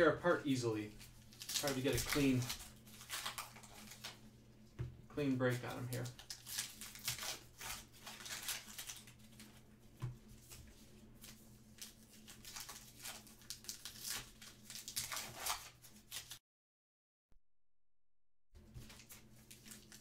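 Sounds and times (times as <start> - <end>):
cards being handled: 0.9 - 4.2, 5.4 - 16.4, 18.6 - 20.0
wrappers tearing and crinkling: 0.9 - 4.2, 5.6 - 9.6, 11.2 - 16.4, 18.9 - 20.0.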